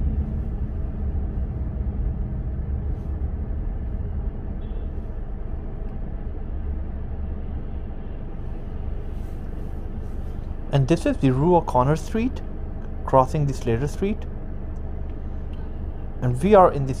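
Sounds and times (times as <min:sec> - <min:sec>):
car driving rumble: 0:00.0 - 0:17.0.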